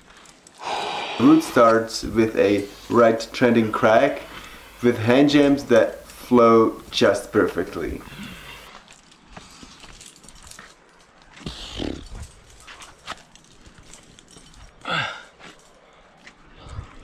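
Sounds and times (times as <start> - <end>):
climbing gear clicks and scuffs: 0.0 - 0.6, 1.6 - 17.0
short vocal sound: 0.6 - 2.2.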